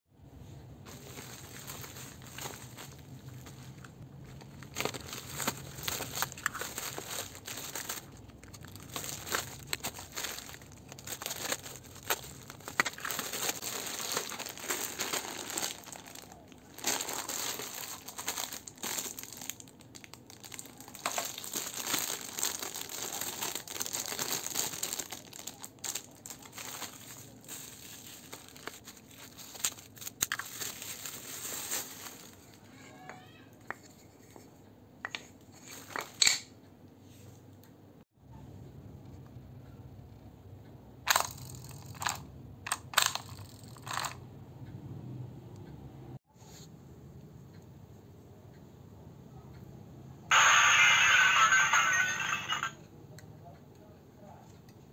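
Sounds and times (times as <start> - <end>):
plastic packaging crinkling: 0.9 - 32.6.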